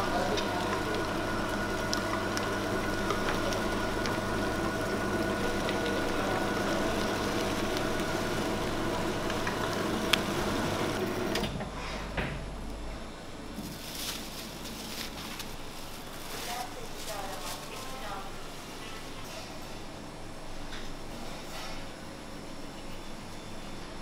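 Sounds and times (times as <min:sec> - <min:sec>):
electric meat grinder running: 0:00.0 - 0:11.4.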